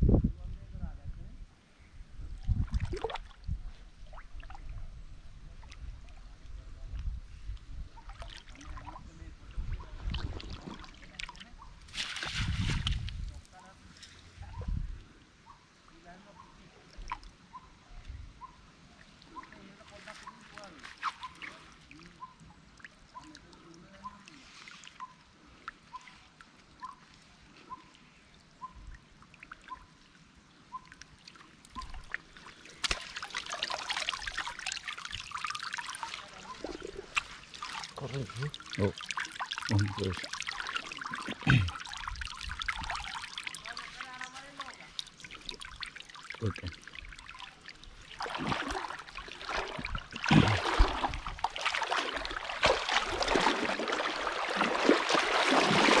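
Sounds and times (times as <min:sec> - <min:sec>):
water splashing off net: 0:11.9 - 0:13.0, 0:32.7 - 0:38.0, 0:48.0 - 0:56.0
small water drips: 0:20.6 - 0:56.0.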